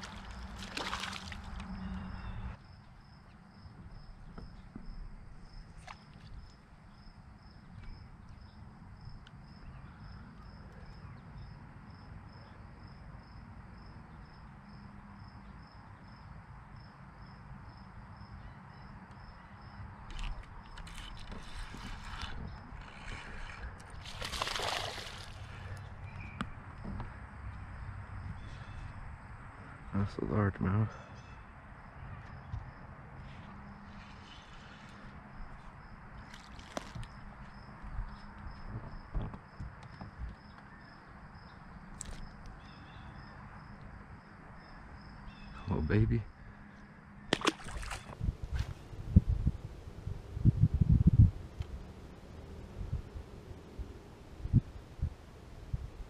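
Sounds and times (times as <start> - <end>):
fish splashing at water surface: 0.0 - 1.8, 23.0 - 25.8, 47.3 - 48.2
steady low rumble: 48.1 - 56.0.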